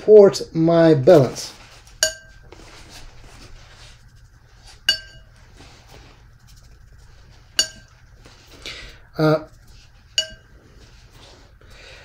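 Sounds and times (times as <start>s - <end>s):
soft brushing: 1.0s - 11.6s
paintbrush clinking on glass jar: 2.0s - 2.4s, 4.9s - 5.4s, 7.6s - 8.0s, 10.1s - 10.5s.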